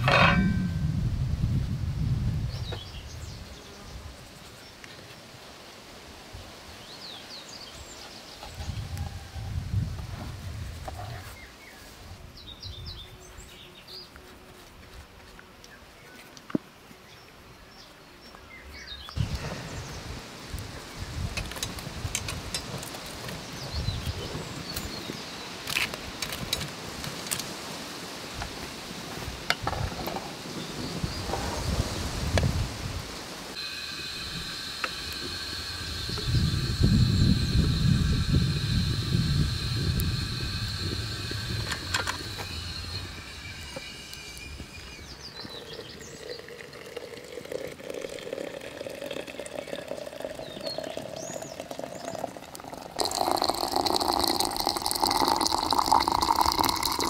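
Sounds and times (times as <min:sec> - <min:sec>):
metal tongs raking embers: 0:00.0 - 0:00.7
metal baking pan set down: 0:00.0 - 0:00.8
birds chirping: 0:33.6 - 0:57.0.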